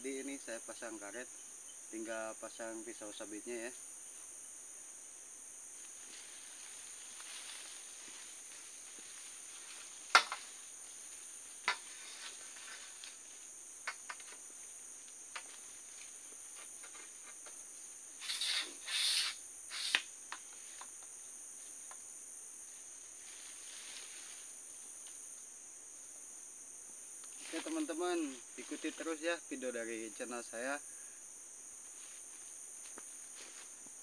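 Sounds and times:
high-pitched insect chorus: 0.0 - 34.0.

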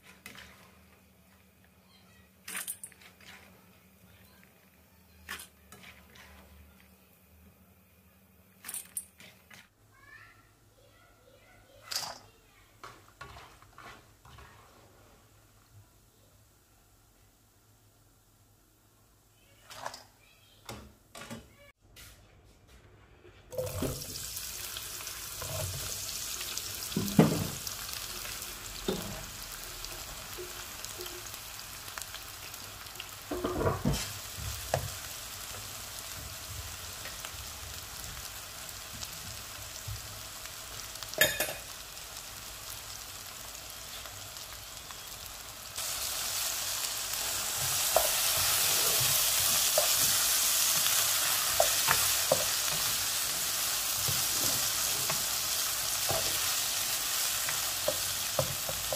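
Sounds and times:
food sizzling in hot oil: 23.5 - 58.9.

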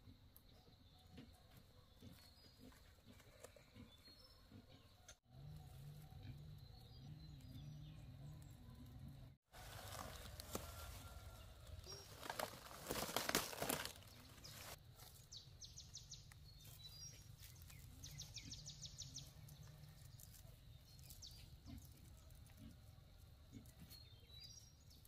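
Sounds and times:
birds chirping trills: 0.5 - 22.8
leafy stems rustling and snapping: 9.6 - 15.3, 19.4 - 22.7.

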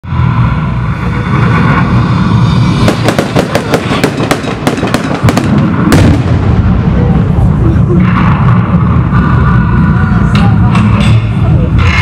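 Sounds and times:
low rumble: 0.0 - 12.0
firecrackers crackling: 0.3 - 9.9.

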